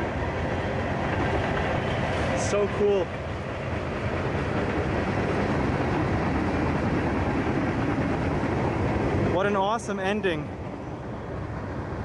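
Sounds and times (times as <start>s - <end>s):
train wheels running on rails: 0.0s - 12.0s.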